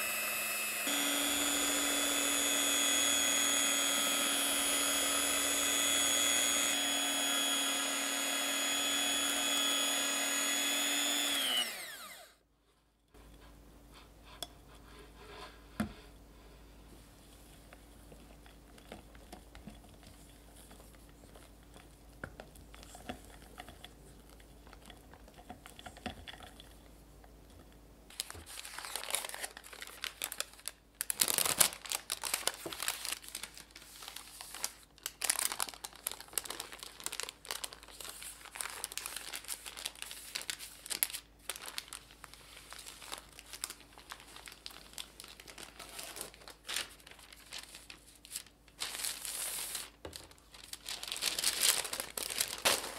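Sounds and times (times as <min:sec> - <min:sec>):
baking paper crinkling: 0:00.2 - 0:11.8, 0:28.1 - 0:52.9.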